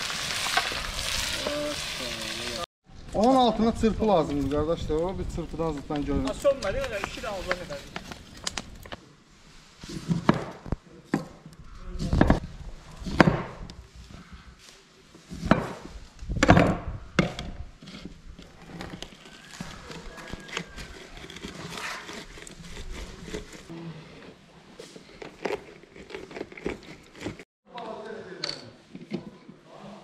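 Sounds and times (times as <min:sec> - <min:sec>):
rustling: 0:06.0 - 0:10.8.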